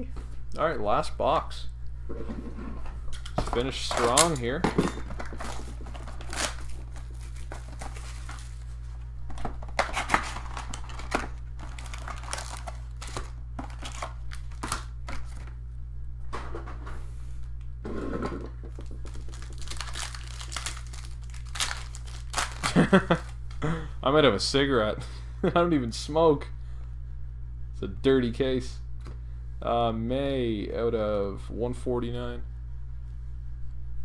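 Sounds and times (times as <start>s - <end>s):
steady low hum: 0.0s - 34.0s
wrappers tearing and crinkling: 3.8s - 4.6s, 5.2s - 8.9s, 9.5s - 15.4s, 18.8s - 23.4s.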